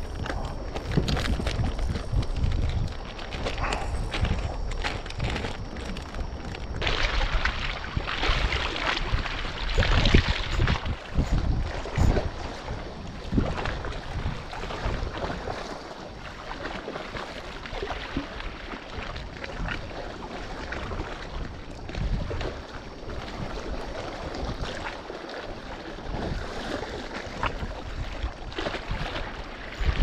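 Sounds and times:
sea water lapping: 0:00.0 - 0:30.0
wind buffeting microphone: 0:00.0 - 0:30.0.

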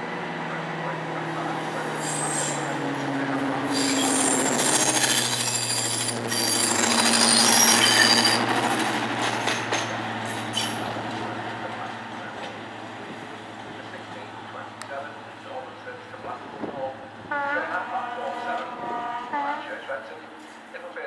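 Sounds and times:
diesel locomotive engine passing: 0:00.0 - 0:21.0
high-pitched squealing: 0:01.9 - 0:02.8, 0:03.7 - 0:08.7.

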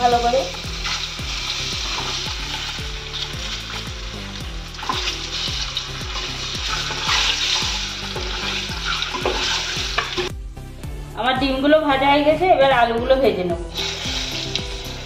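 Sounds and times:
eggs sizzling in hot oil: 0:00.0 - 0:10.3, 0:13.6 - 0:15.0
background music with low beat: 0:00.0 - 0:15.0
metal spatula scraping: 0:04.8 - 0:10.3.

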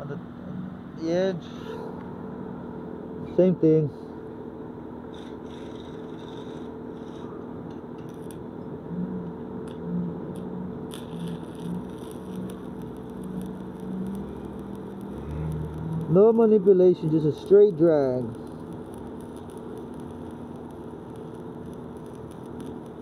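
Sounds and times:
steady low hum: 0:00.0 - 0:23.0
welding arc crackling: 0:05.0 - 0:08.5, 0:09.6 - 0:23.0.

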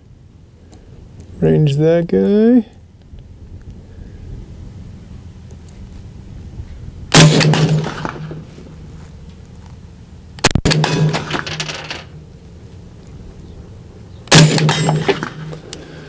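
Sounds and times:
rifle shots with ringing tail: 0:07.1 - 0:08.5, 0:10.4 - 0:12.3, 0:14.3 - 0:15.6.

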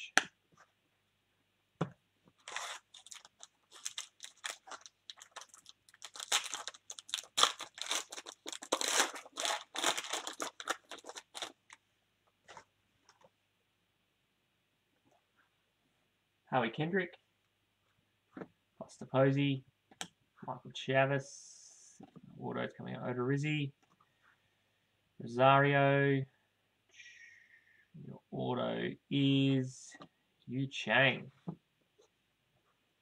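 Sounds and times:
foil wrapper tearing and crinkling: 0:02.4 - 0:11.7.

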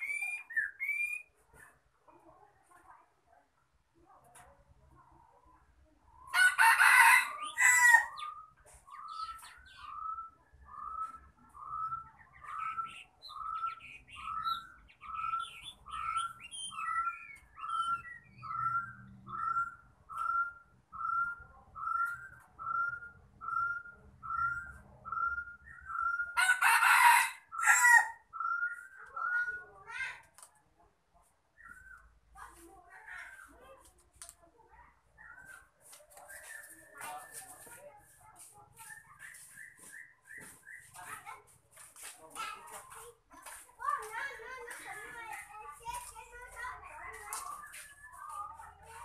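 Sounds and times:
rooster crowing: 0:06.3 - 0:08.2, 0:26.4 - 0:28.2.

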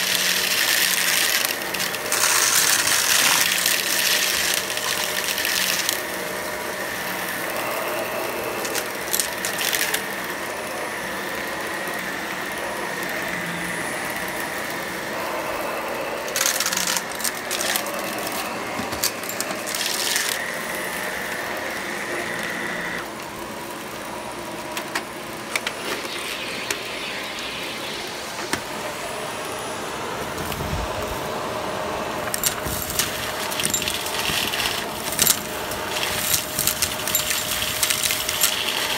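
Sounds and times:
debris rattling in vacuum: 0:00.0 - 0:12.0, 0:12.8 - 0:21.6, 0:32.0 - 0:38.9
vacuum cleaner running on carpet: 0:00.0 - 0:38.9.

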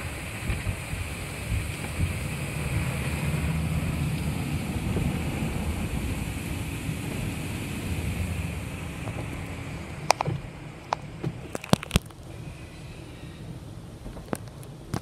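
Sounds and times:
water spray and brushes on car: 0:00.0 - 0:11.5.

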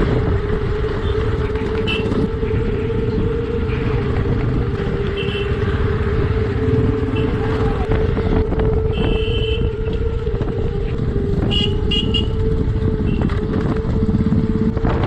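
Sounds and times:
motorcycle engine running: 0:00.0 - 0:15.0
motorcycle horn tooting: 0:01.8 - 0:02.9, 0:05.1 - 0:05.8, 0:07.0 - 0:07.7, 0:08.8 - 0:09.9, 0:11.3 - 0:13.5.

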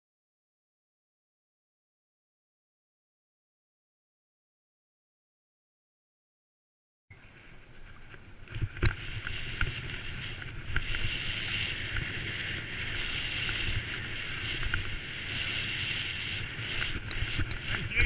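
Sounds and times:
wind noise on microphone: 0:07.1 - 0:18.0
bike tyres and frame rattling: 0:07.3 - 0:18.0
bike knocking on ruts: 0:08.0 - 0:18.0.

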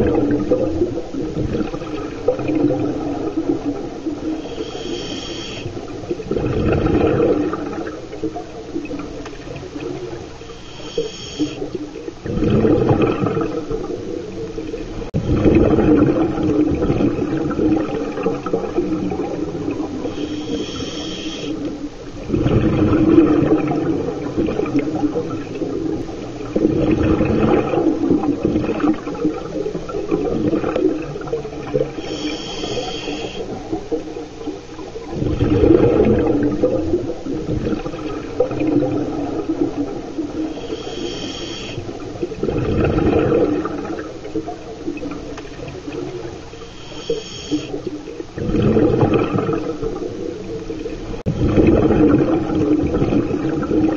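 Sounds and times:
rumbling exhaled bubbles: 0:00.0 - 0:53.9
hissing regulator inhales: 0:04.4 - 0:05.8, 0:10.4 - 0:11.7, 0:20.0 - 0:21.6, 0:31.9 - 0:33.6, 0:40.5 - 0:41.9, 0:46.5 - 0:47.8.

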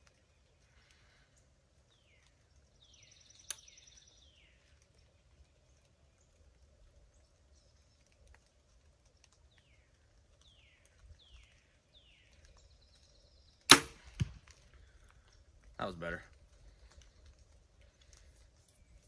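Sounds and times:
bird chirping: 0:00.0 - 0:08.2, 0:09.1 - 0:13.7
bow string crack: 0:13.6 - 0:15.4
arrow striking target: 0:13.7 - 0:14.5.

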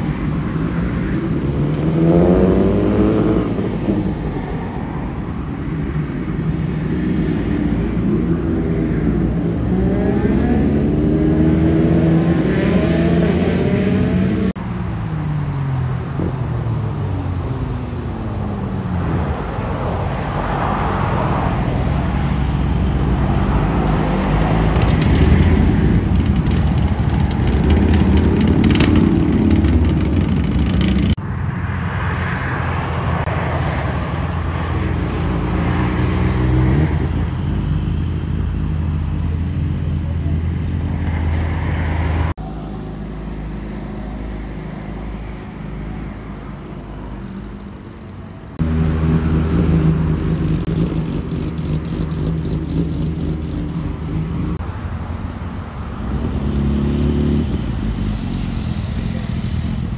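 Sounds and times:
motorcycle engines revving: 0:00.0 - 0:54.7, 0:55.8 - 0:59.9
passing traffic: 0:00.0 - 0:59.9
motorcycle engines idling: 0:23.8 - 0:31.2, 0:45.4 - 0:54.6.

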